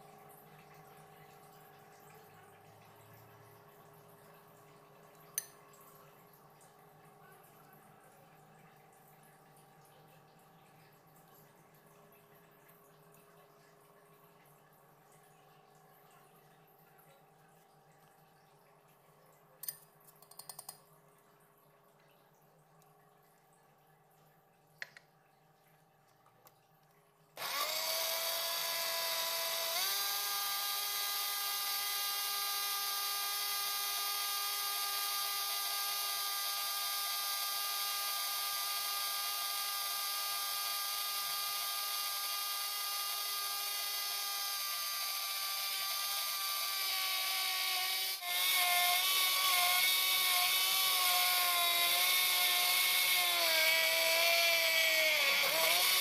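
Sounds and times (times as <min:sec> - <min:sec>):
blender motor whining: 0:27.4 - 0:56.0.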